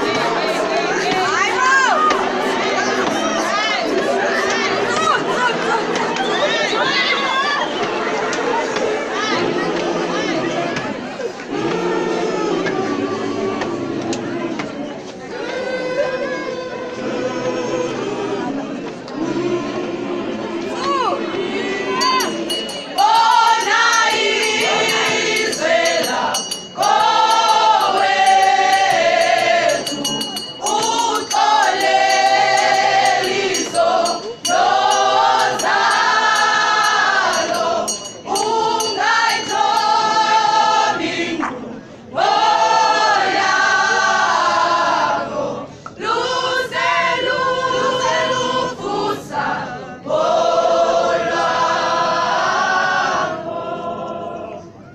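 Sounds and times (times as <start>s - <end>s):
choir singing: 0.0s - 54.9s.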